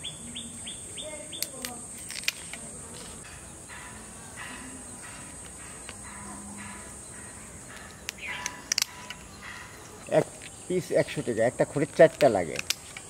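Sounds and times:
birds calling: 0.0s - 13.0s
insect drone: 0.0s - 13.0s
pruning shears snipping: 7.7s - 13.0s.

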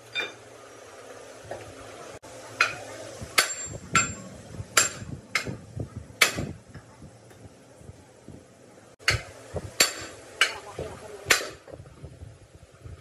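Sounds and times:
hammer striking metal: 3.4s - 4.2s, 4.8s - 5.6s, 6.2s - 6.6s, 9.0s - 10.6s, 11.3s - 11.6s.

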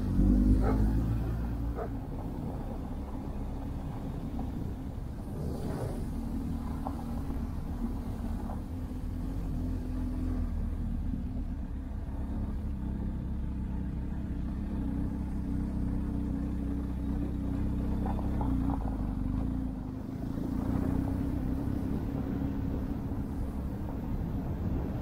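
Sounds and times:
motorcycle engine rumbling: 0.0s - 25.0s.

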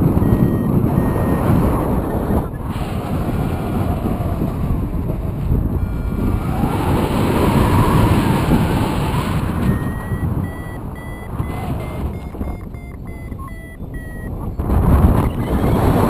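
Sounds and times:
variometer short beeps: 0.0s - 2.7s, 5.1s - 6.5s, 9.6s - 16.0s
wind buffeting microphone: 0.0s - 16.0s.

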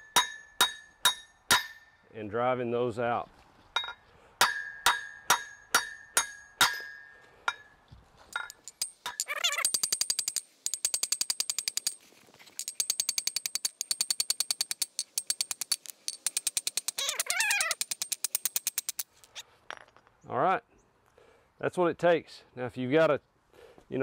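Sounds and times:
hammer striking metal punch: 0.0s - 1.9s, 3.8s - 7.7s
sharp clicking strikes: 12.6s - 19.1s.

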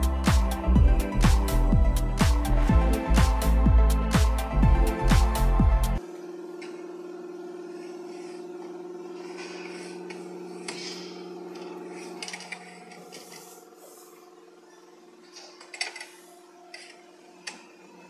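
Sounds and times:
electronic music with a beat: 0.0s - 6.1s
tube-bending machine humming: 0.0s - 18.0s.

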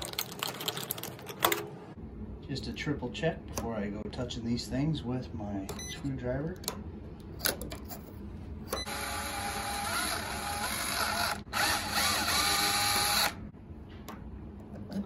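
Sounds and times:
power drill motor running: 8.8s - 13.4s.

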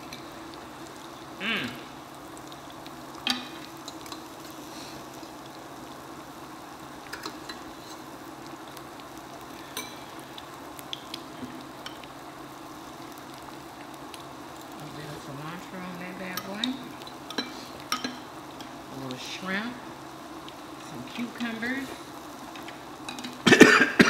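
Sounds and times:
food sizzling on a grill: 0.0s - 24.0s
chopsticks clicking against pan: 7.1s - 7.6s, 16.3s - 18.7s.

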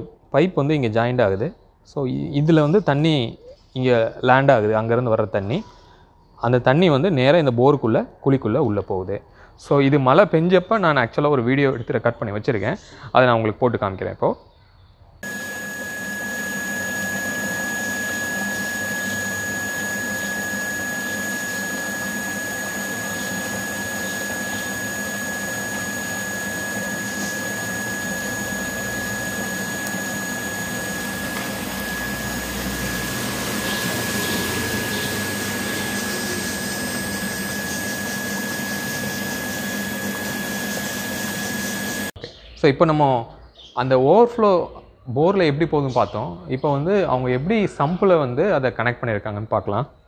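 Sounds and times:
thin high-pitched tone: 15.2s - 42.2s.

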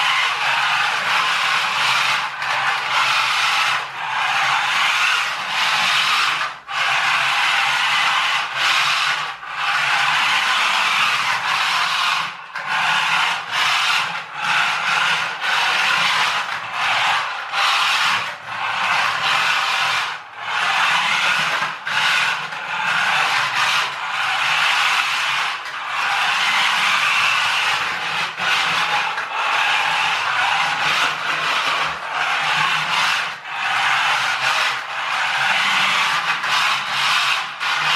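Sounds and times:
toy truck motor whirring: 0.0s - 37.9s.

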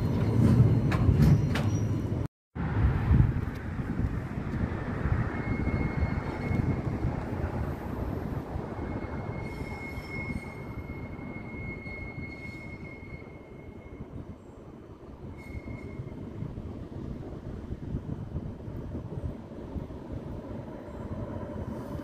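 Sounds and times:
tram wheels squealing on rail: 0.0s - 2.3s, 4.6s - 16.6s.

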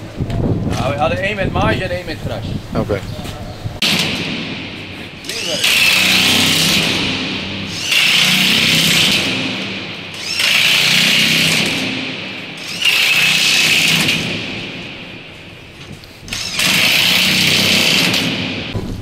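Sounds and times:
impact wrench tightening bolts: 5.2s - 14.4s, 16.3s - 18.5s.

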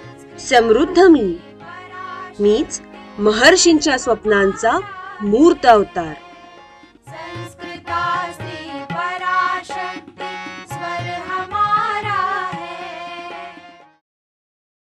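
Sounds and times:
wavering ornamented melody: 0.4s - 7.0s.

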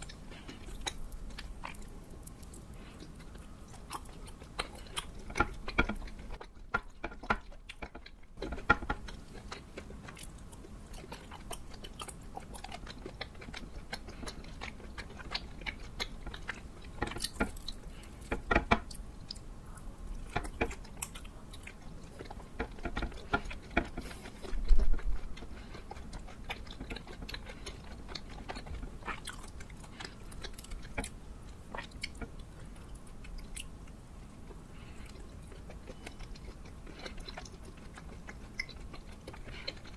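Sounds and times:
chewing sticky rice cakes: 0.0s - 39.9s.

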